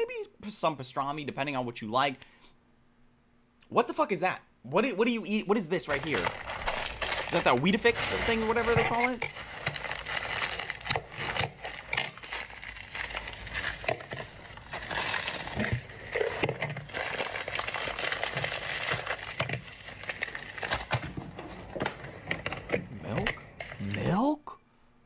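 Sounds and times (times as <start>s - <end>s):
wrapper crinkling and rustling: 5.3s - 24.3s.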